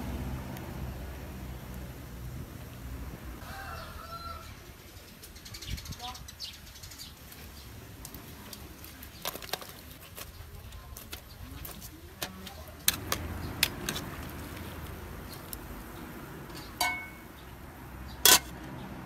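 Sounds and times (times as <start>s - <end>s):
metal cookware clinking: 16.5s - 17.3s, 18.2s - 18.6s.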